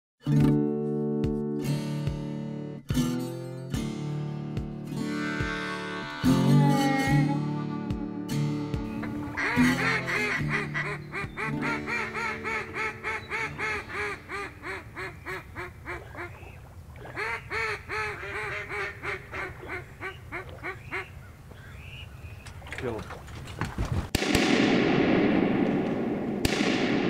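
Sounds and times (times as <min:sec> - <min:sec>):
duck call rapid quacks: 0:05.0 - 0:07.3, 0:09.4 - 0:14.8.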